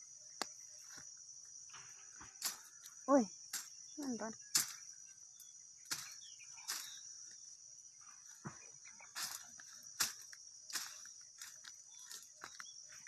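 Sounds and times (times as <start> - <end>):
high insect chorus: 0.0 - 13.0
dry leaves crackling underfoot: 2.3 - 4.9, 5.9 - 7.4, 8.9 - 13.0.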